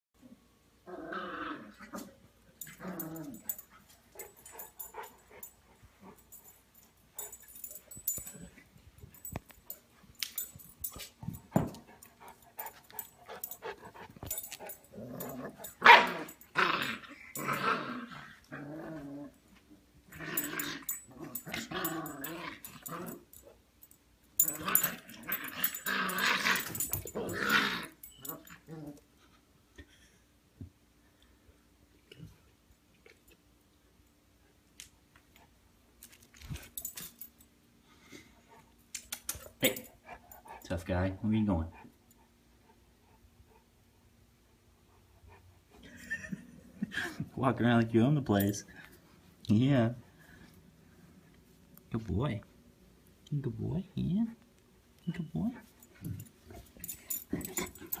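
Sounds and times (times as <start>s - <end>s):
dogs growling in play: 0.8s - 6.5s, 10.4s - 23.5s, 24.4s - 29.3s, 55.8s - 58.0s.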